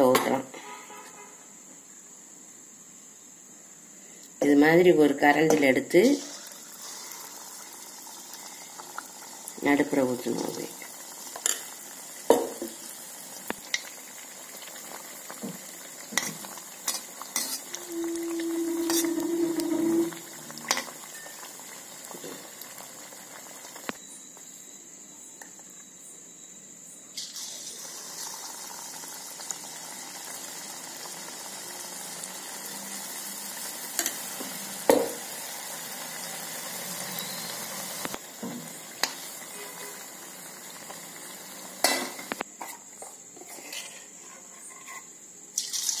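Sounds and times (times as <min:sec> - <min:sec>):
batter sizzling in hot oil: 0:05.7 - 0:24.0, 0:27.2 - 0:42.6, 0:45.6 - 0:46.0.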